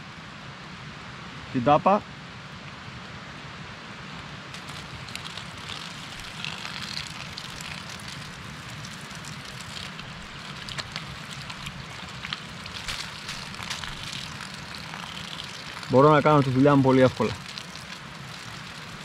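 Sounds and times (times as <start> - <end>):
water running and splashing: 4.5 - 19.0.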